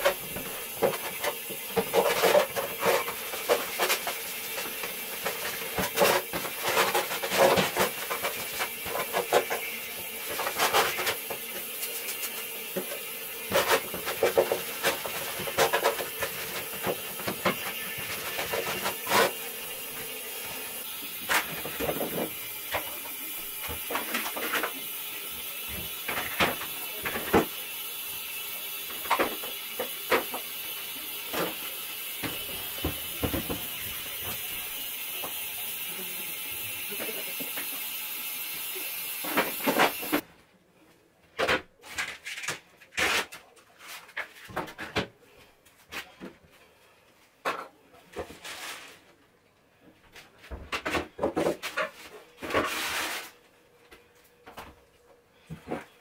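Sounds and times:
plastic containers knocking and clicking: 32.2 - 34.4.

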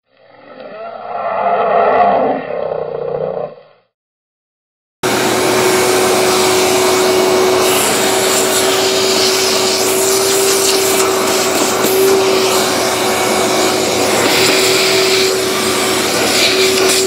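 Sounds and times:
wet dry vacuum running: 5.0 - 17.0.

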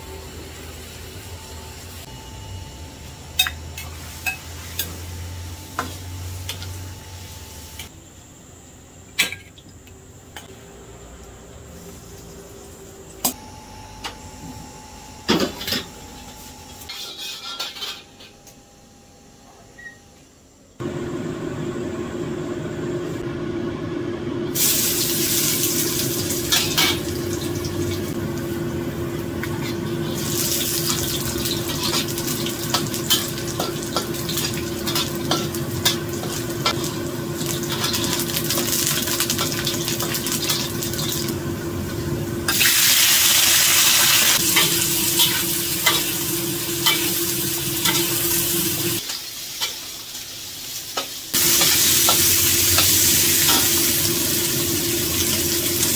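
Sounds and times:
cooking hiss: 2.9 - 13.4, 24.5 - 55.9.

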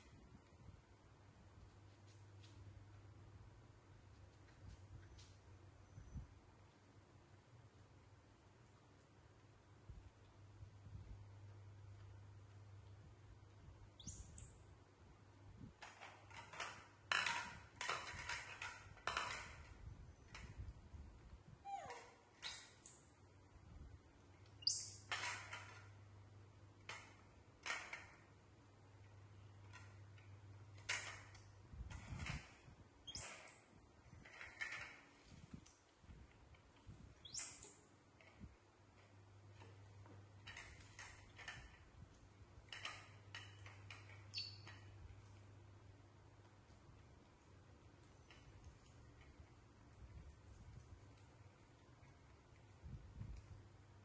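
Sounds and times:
monkey squeaking: 14.0 - 14.5, 21.6 - 23.0, 24.6 - 25.0, 33.1 - 33.6, 37.2 - 37.8, 44.3 - 44.7.

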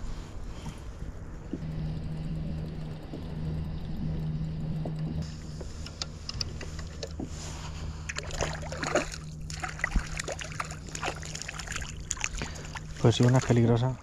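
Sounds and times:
low hum: 0.0 - 14.0
small knocks and clicks: 5.6 - 7.3
water splashing against kayak hull: 7.2 - 13.8.

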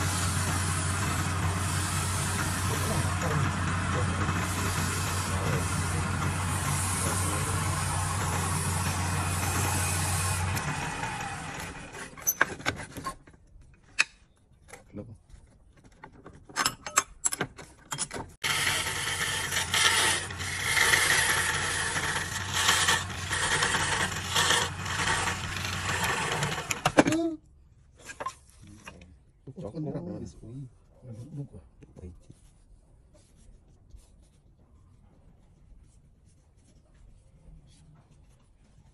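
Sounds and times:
fibre rubbing spinning wood: 0.0 - 12.2, 18.4 - 27.0
lathe motor humming: 0.0 - 12.2, 18.4 - 27.0
chisel scraping turning wood: 0.0 - 13.3, 18.4 - 27.0.

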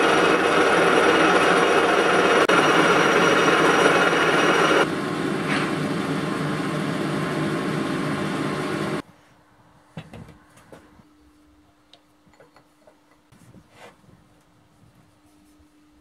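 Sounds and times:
lathe tool cutting metal: 0.0 - 4.9
metal lathe running: 0.0 - 4.9.

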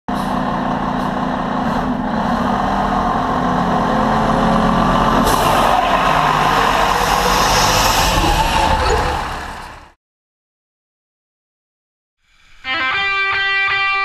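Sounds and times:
air brakes hissing: 0.1 - 1.3, 5.2 - 5.9
diesel engine running: 0.1 - 10.0.

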